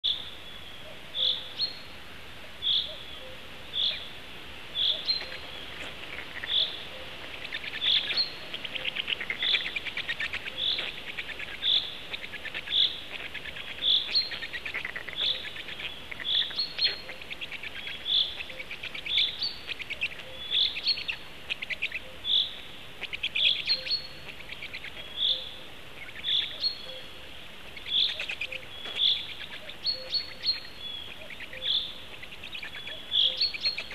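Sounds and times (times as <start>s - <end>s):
fast rattling bird trill: 4.8s - 25.4s.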